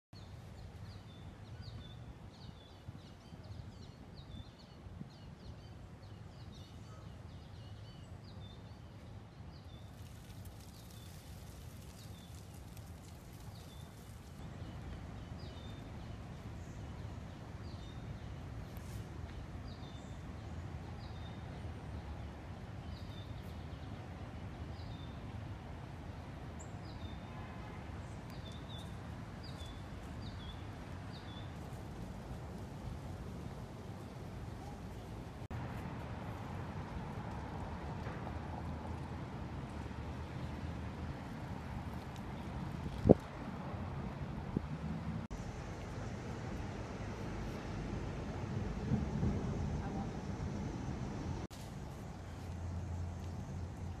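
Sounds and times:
soft hiss: 9.0s - 20.4s
steady low rumble: 31.6s - 54.0s.

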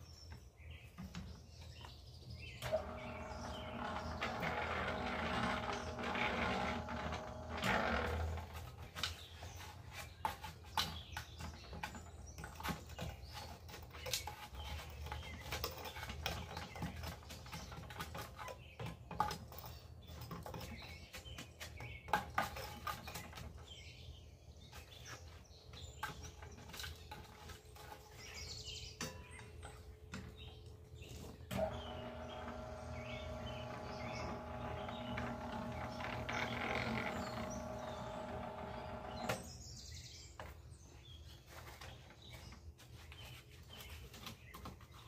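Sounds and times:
birds chirping: 0.0s - 45.0s
cement mixer humming: 2.6s - 10.7s, 31.5s - 39.5s.

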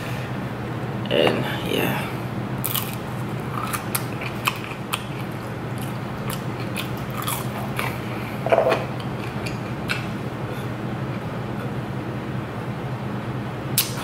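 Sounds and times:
chewing crunches: 2.6s - 10.1s.

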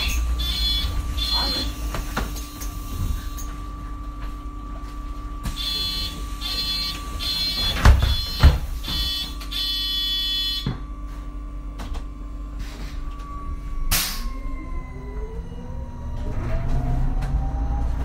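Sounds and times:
door warning buzzer beeping: 0.0s - 2.0s, 5.4s - 10.8s
bus engine hum: 0.0s - 5.5s, 12.4s - 18.0s.

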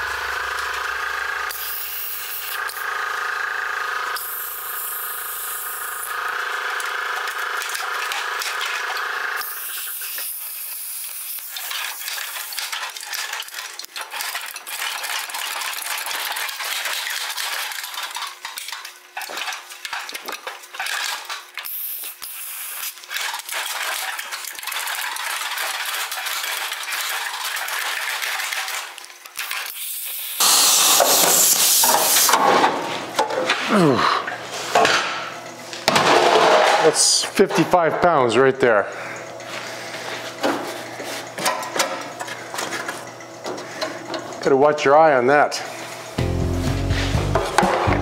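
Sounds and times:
sheet metal cutting hiss: 29.7s - 32.4s.

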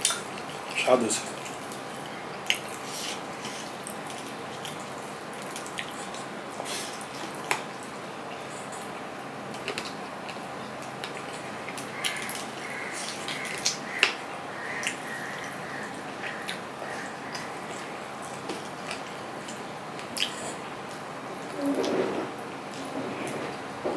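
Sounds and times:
wet chewing and mouth smacks: 1.4s - 8.9s, 9.5s - 14.2s, 16.2s - 21.1s.

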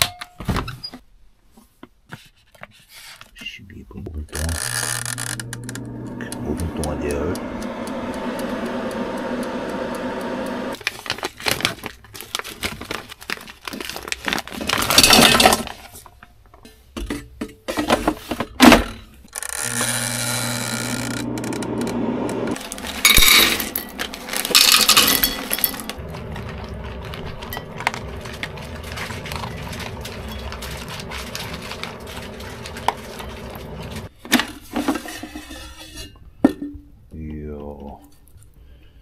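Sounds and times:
air fryer humming: 5.0s - 10.8s, 19.5s - 34.1s
air fryer basket clacking: 5.4s - 10.3s
dogs eating from bowls: 23.7s - 34.1s.

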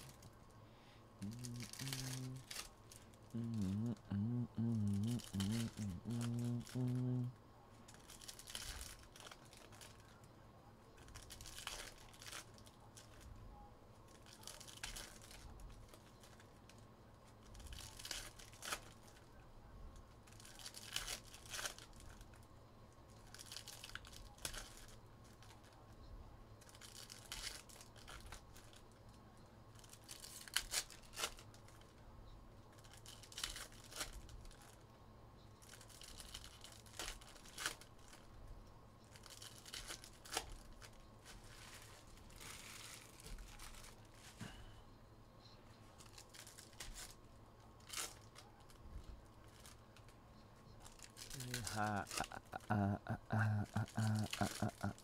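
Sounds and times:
card wrappers tearing and crinkling: 1.2s - 4.0s, 11.0s - 13.2s, 14.1s - 16.4s, 17.5s - 19.3s, 20.3s - 22.3s, 26.6s - 28.8s, 29.8s - 31.8s, 32.8s - 34.8s, 35.6s - 38.2s, 39.1s - 41.0s, 46.0s - 47.2s, 47.8s - 48.7s, 50.8s - 55.0s.

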